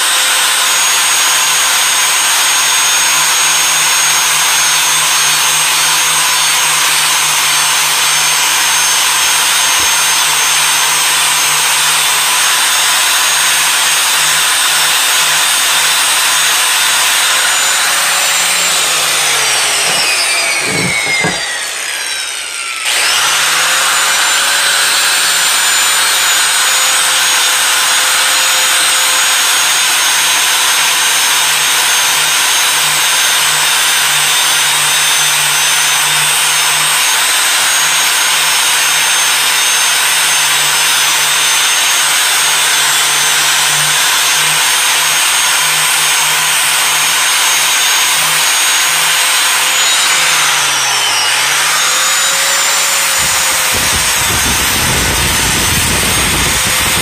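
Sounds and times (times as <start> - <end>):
angle grinder grinding steel: 0.0 - 57.0
knocks: 19.8 - 21.6.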